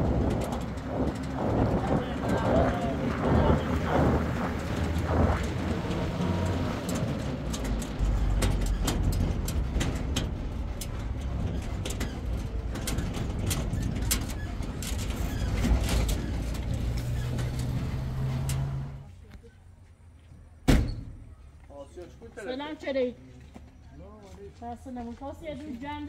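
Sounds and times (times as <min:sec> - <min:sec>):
machinery clicking and rattling: 0:00.0 - 0:19.0.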